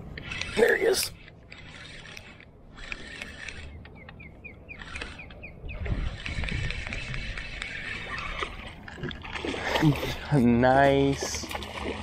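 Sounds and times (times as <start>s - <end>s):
bird chirping: 3.6s - 6.0s.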